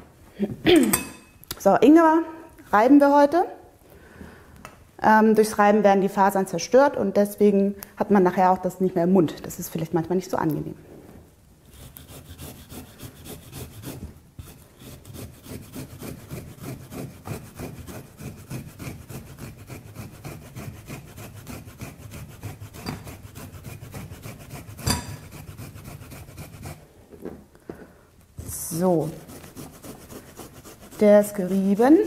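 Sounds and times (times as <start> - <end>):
ginger scraping on metal grater: 11.8 - 26.8, 28.5 - 32.0.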